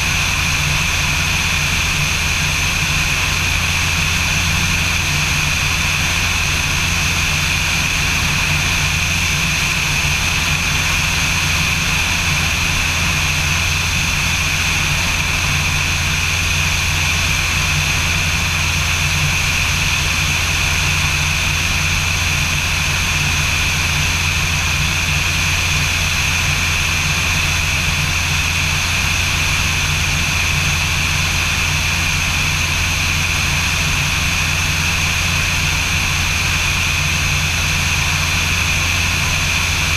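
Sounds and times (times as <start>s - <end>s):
propeller engine droning: 0.0s - 39.9s.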